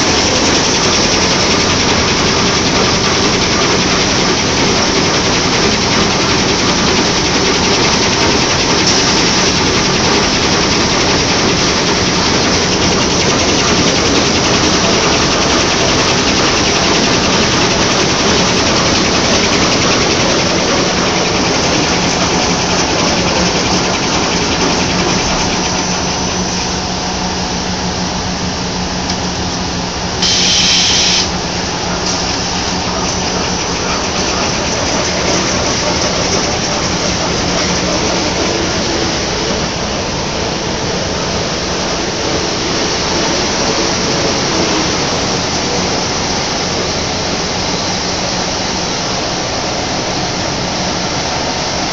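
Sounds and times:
machinery running: 0.0 - 51.9
short hiss: 30.2 - 31.3.

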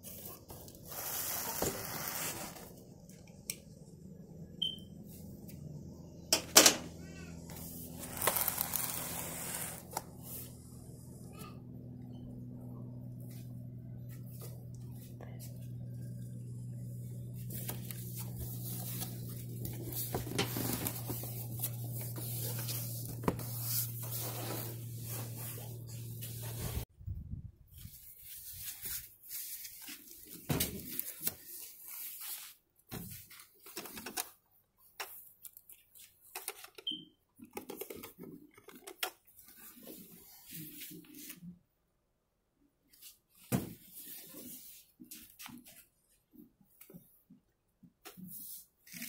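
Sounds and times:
rustling and scraping: 0.0 - 2.8, 17.3 - 26.9, 27.7 - 34.0
steady low hum: 2.8 - 27.4
foam wrap crinkling: 7.6 - 10.0, 17.5 - 26.6.

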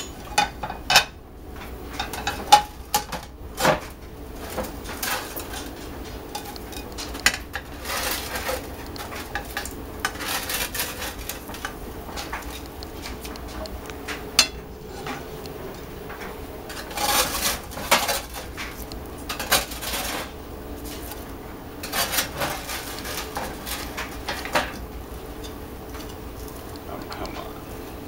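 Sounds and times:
metal spatula scraping baking sheet: 4.4 - 13.1, 16.7 - 24.8.

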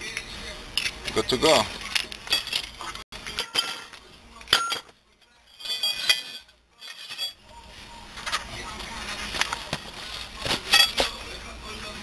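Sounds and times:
metal parts clinking: 1.9 - 7.4, 10.1 - 11.2.

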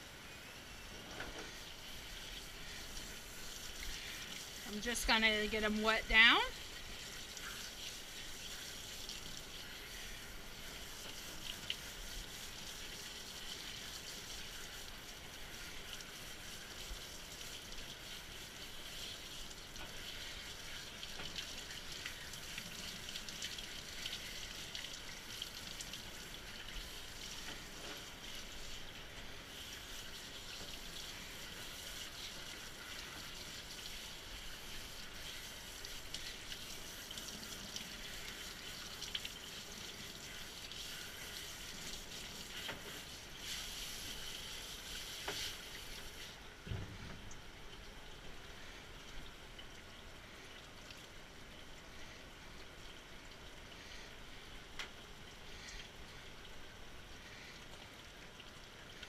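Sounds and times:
water spraying on dog's coat: 1.4 - 46.4.

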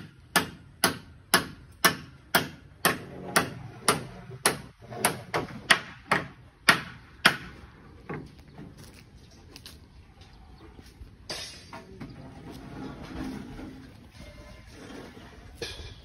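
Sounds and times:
hammering: 0.0 - 8.3.

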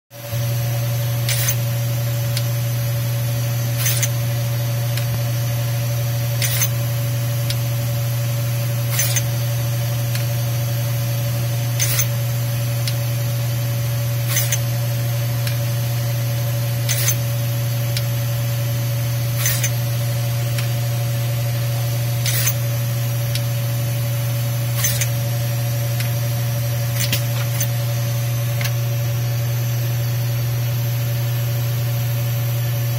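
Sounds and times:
machine humming: 0.2 - 32.9
pneumatic air hiss: 1.3 - 1.6, 3.8 - 4.1, 6.4 - 6.8, 8.9 - 9.4, 11.8 - 12.2, 14.2 - 14.7, 16.8 - 17.2, 19.3 - 19.8, 22.2 - 22.6, 24.7 - 25.2, 26.9 - 27.8.

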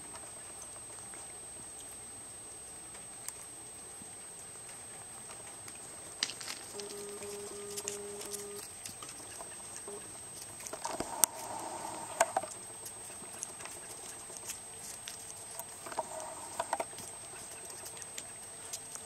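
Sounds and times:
puppies' paws pattering on wood chips: 4.5 - 11.6, 12.4 - 19.0.

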